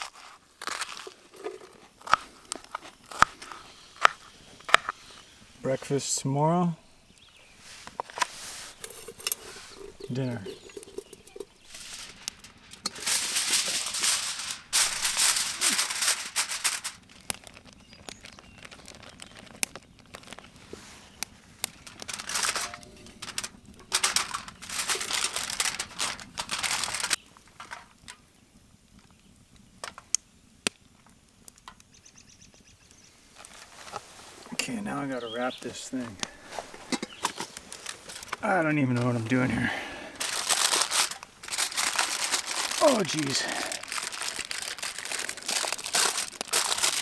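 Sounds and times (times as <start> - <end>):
food wrapping crinkling: 0.0 - 5.4, 7.1 - 28.2, 33.3 - 34.5, 35.9 - 47.0.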